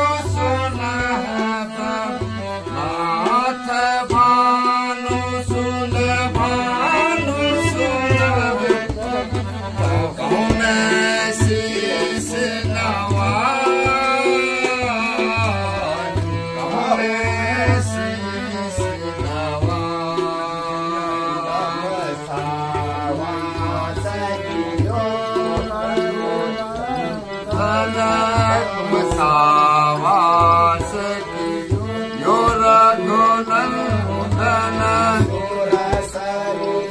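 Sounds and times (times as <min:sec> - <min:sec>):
harmonium drone: 0:00.0 - 0:36.9
man singing: 0:00.0 - 0:36.9
tabla strokes: 0:00.0 - 0:36.9.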